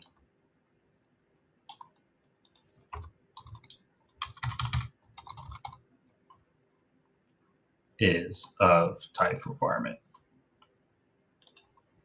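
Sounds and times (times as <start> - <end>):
typing on keyboard: 1.7 - 5.8, 11.4 - 11.8.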